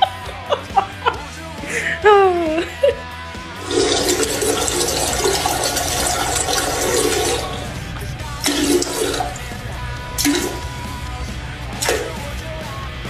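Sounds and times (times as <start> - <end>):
toilet flushing: 3.5 - 12.4.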